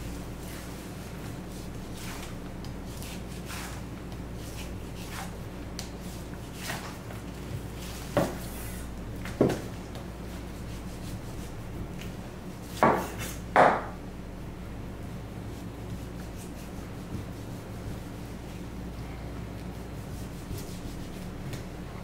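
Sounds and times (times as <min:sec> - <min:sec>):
knife knocking on cutting board: 0:12.8 - 0:13.9.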